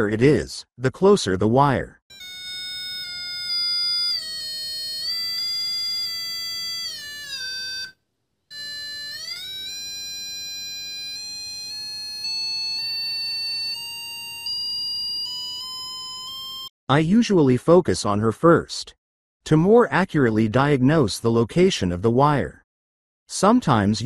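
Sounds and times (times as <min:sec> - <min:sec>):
electronic signal tone: 0:08.5 - 0:16.7.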